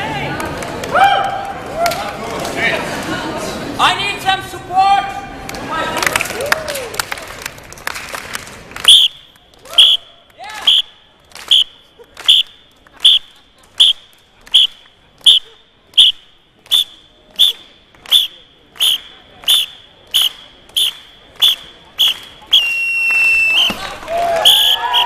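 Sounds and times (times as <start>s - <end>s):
high whistle tone: 15.3s - 25.0s.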